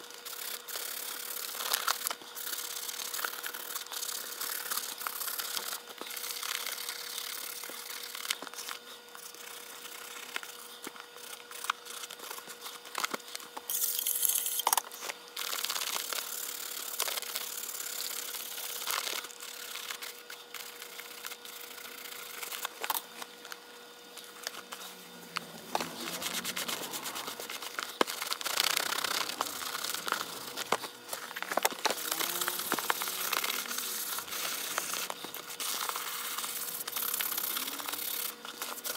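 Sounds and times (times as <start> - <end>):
faint steady hum: 0.0 - 38.9
leather glove creaking: 24.4 - 34.2.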